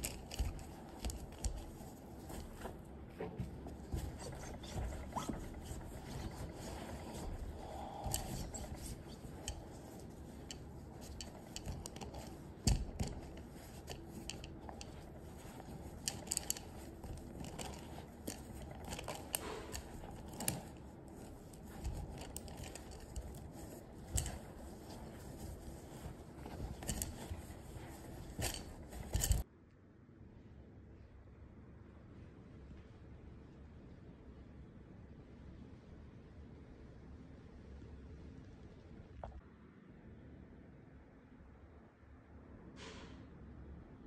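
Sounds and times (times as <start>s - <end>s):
towel rubbing against glass vase: 0.0s - 29.4s.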